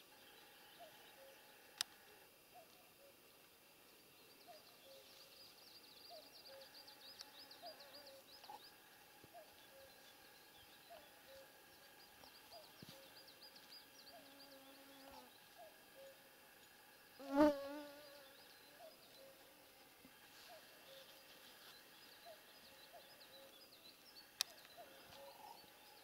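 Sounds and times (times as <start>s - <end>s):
small birds singing: 2.6s - 26.0s
mosquito buzzing past: 17.2s - 18.4s.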